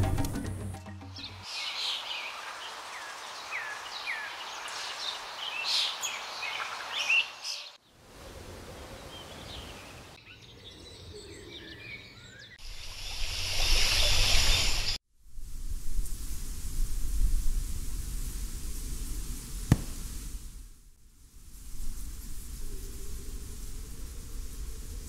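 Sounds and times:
outdoor ambience hiss: 0:00.0 - 0:10.2, 0:12.6 - 0:25.0
birds chirping: 0:01.0 - 0:07.8.

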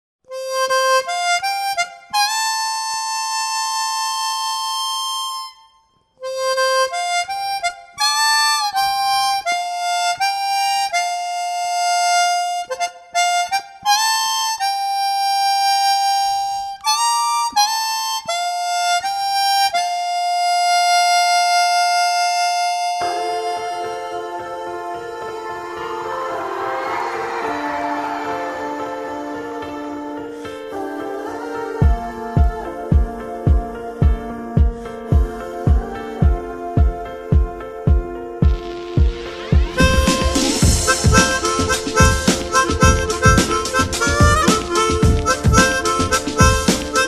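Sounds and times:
harmonica melody: 0:00.3 - 0:47.0.

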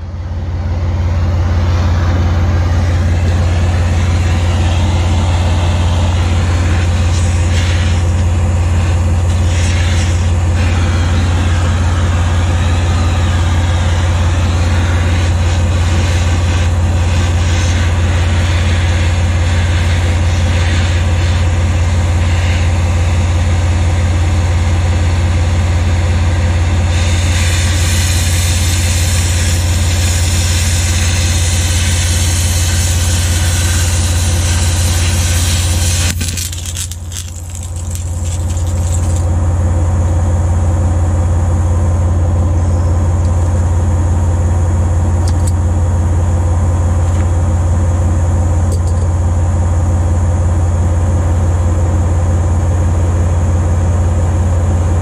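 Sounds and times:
engine idling: 0:00.0 - 0:48.0
cutting torch hissing: 0:01.8 - 0:21.6, 0:26.8 - 0:39.3.

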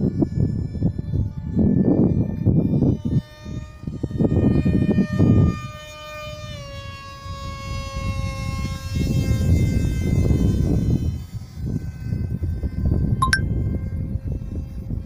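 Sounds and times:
small aircraft engine whine: 0:00.0 - 0:15.0.

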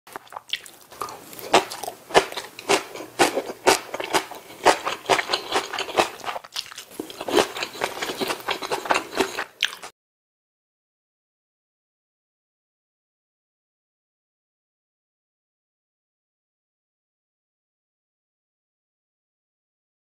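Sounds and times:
man chewing crunchy food: 0:00.1 - 0:09.9.

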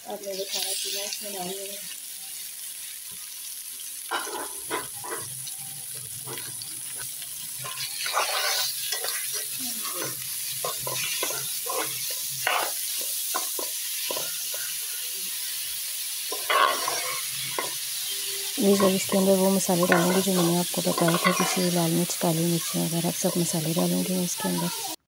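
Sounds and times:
food sizzling in hot oil: 0:00.0 - 0:25.0
metal spoon scraping a pan: 0:04.1 - 0:05.6, 0:06.2 - 0:14.8, 0:16.2 - 0:21.9.

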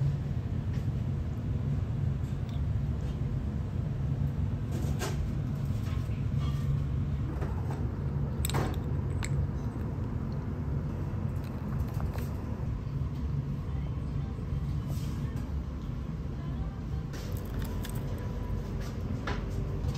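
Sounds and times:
low background hum: 0:00.0 - 0:19.9.

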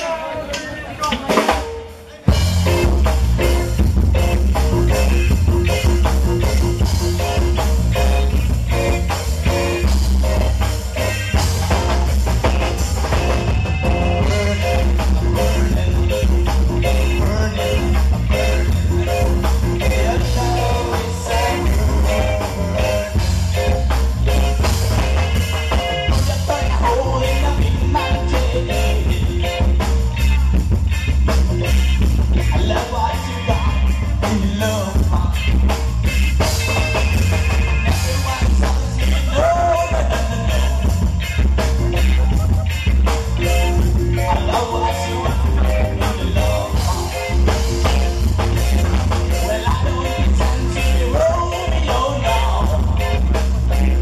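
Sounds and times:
live rock band playing: 0:00.0 - 0:54.0
person singing: 0:11.0 - 0:30.4, 0:32.4 - 0:35.9, 0:36.7 - 0:42.8, 0:43.4 - 0:54.0.

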